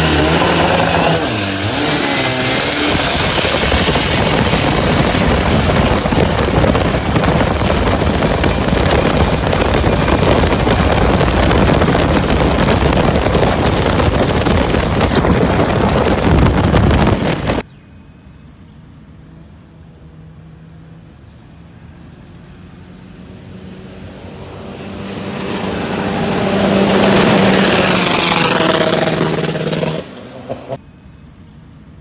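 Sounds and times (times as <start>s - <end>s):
wind on microphone: 2.4s - 17.6s
boat engine running hard: 2.8s - 17.6s.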